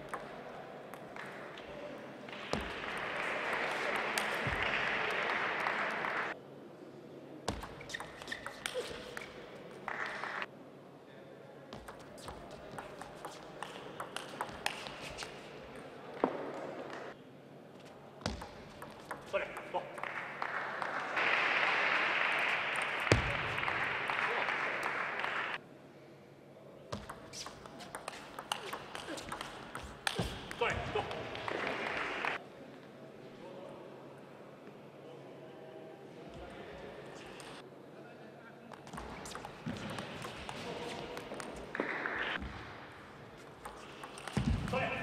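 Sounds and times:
crowd applauding: 2.3s - 6.4s, 9.8s - 10.5s, 20.0s - 25.6s, 30.6s - 32.4s
table tennis ball clicking: 11.9s - 15.0s, 27.0s - 30.3s, 43.6s - 44.4s.

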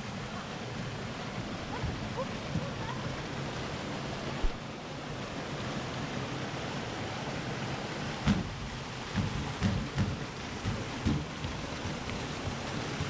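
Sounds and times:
steady rushing noise: 0.0s - 13.0s
sharp knock: 8.2s - 8.5s, 9.1s - 11.3s
low thump: 8.2s - 12.0s.

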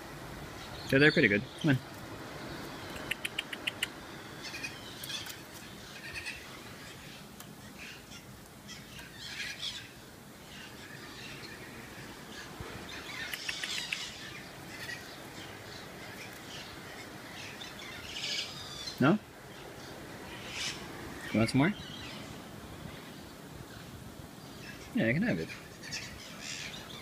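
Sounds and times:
birds calling: 0.0s - 27.0s
bird clicks: 2.9s - 4.0s, 13.2s - 14.1s.

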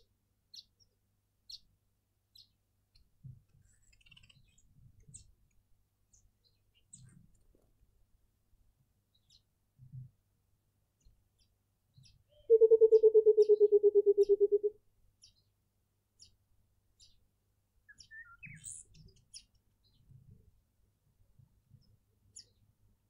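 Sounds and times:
small birds chirping: 2.3s - 7.5s, 9.1s - 9.5s, 11.0s - 15.5s, 16.2s - 17.3s, 17.9s - 20.4s, 21.7s - 22.9s
bird giving rapid low hoots: 12.3s - 14.8s.

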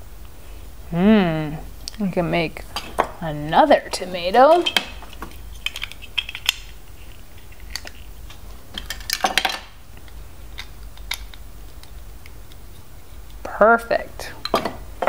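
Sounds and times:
plastic bricks clicking: 7.5s - 12.6s.

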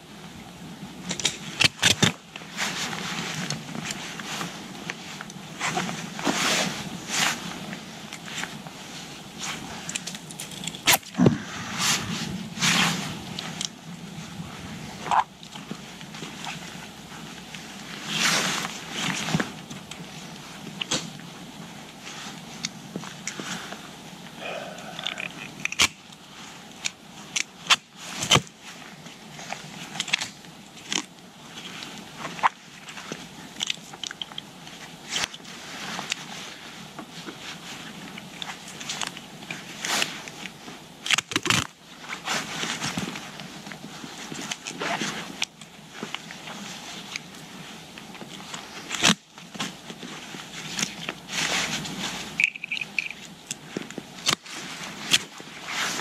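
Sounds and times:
fabric rustling: 2.3s - 25.0s, 34.7s - 56.0s
buckle clicks: 52.4s - 53.3s.

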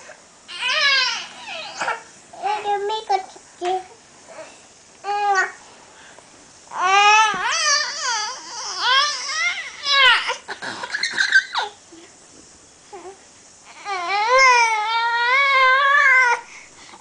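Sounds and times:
baby crying: 0.5s - 2.0s, 6.7s - 10.4s.

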